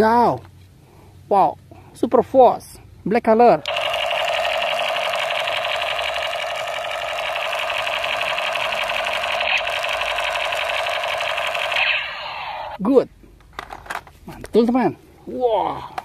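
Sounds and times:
toy gun electronic machine-gun rattle: 3.6s - 12.8s.

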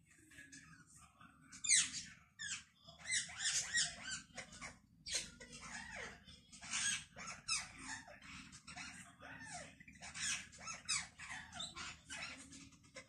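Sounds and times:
parrot chattering: 1.6s - 13.0s.

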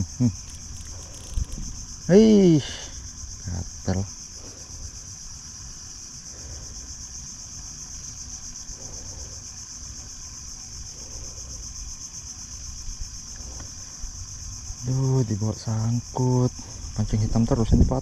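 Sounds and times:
shrill insect chorus: 0.0s - 18.0s.

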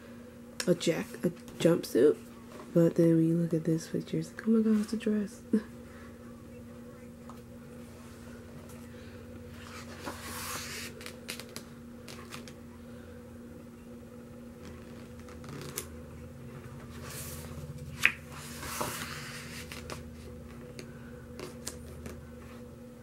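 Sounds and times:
paper pages rustling: 9.6s - 12.6s, 16.9s - 20.6s.

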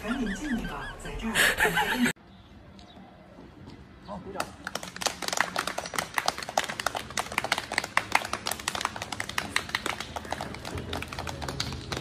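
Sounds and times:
crowd clapping: 4.4s - 12.0s.

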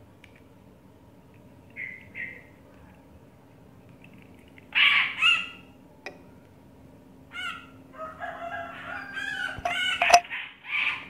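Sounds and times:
faint low hum: 0.0s - 11.0s
short bird calls: 1.8s - 2.5s
rooster crowing: 7.3s - 10.2s.

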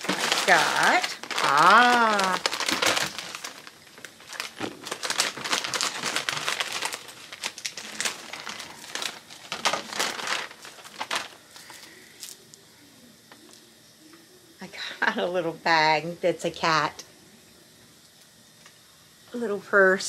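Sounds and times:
plastic bag crinkling: 0.0s - 12.6s.

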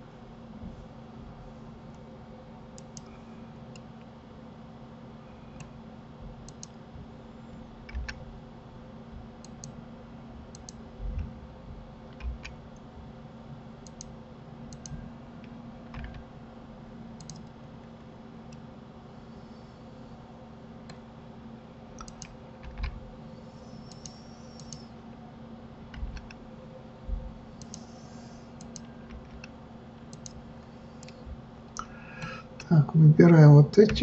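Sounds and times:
steady low hum: 0.0s - 34.0s
mouse and keyboard clicks: 17.2s - 17.5s, 22.0s - 22.9s, 23.8s - 24.9s, 27.6s - 29.5s, 30.1s - 30.4s.

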